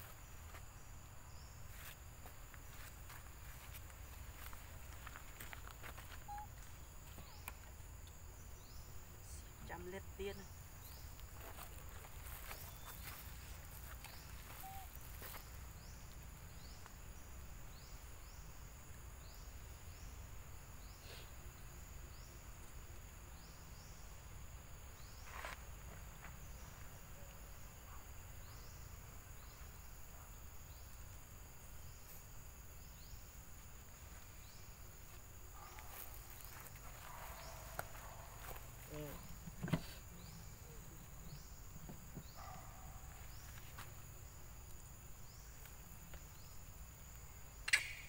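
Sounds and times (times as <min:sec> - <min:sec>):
insects whining and chirping: 0:00.0 - 0:48.0
sharp click: 0:47.6 - 0:48.0.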